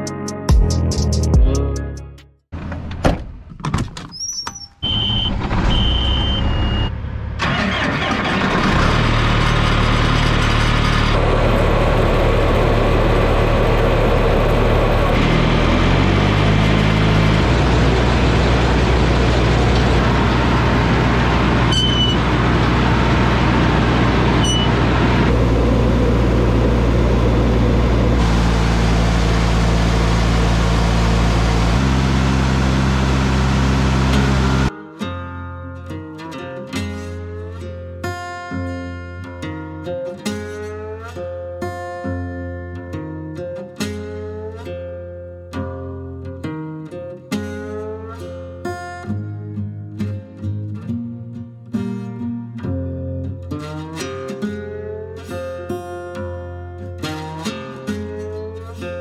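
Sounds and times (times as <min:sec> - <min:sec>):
short high beeps: 0:04.5 - 0:06.9, 0:21.7 - 0:22.2, 0:24.4 - 0:24.8
diesel engine running: 0:04.8 - 0:34.7.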